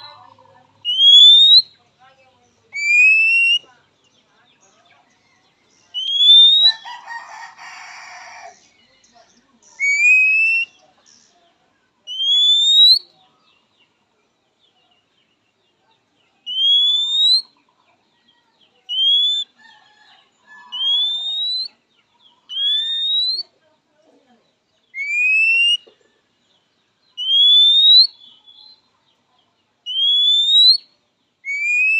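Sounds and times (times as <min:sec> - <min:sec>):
bird whistled calls: 0:00.8 - 0:01.8, 0:02.7 - 0:03.7, 0:05.9 - 0:06.8, 0:09.7 - 0:10.8, 0:12.1 - 0:13.1, 0:16.5 - 0:17.6, 0:18.9 - 0:19.6, 0:20.7 - 0:21.8, 0:22.5 - 0:23.5, 0:24.9 - 0:25.9, 0:27.2 - 0:28.8, 0:29.9 - 0:31.9.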